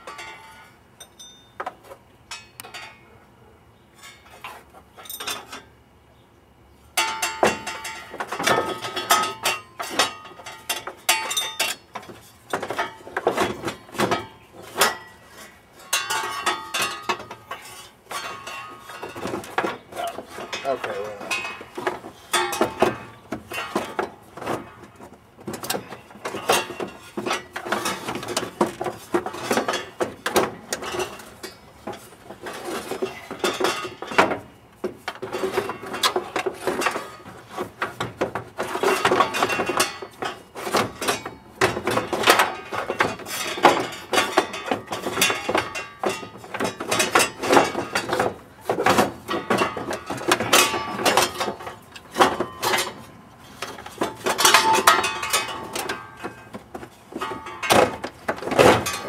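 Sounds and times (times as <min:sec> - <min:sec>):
wrench and metal parts clinking: 0:00.0 - 0:01.6, 0:04.0 - 0:05.7, 0:07.0 - 0:24.0.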